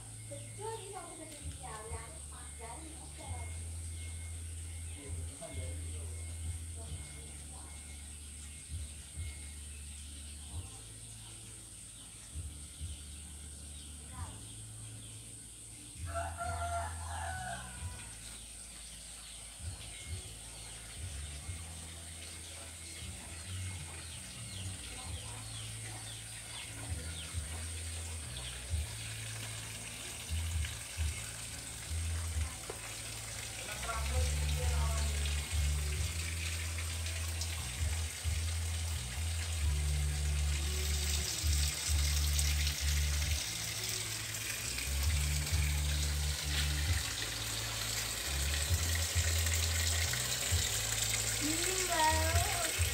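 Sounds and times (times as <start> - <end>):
rooster crowing: 16.1 - 18.2.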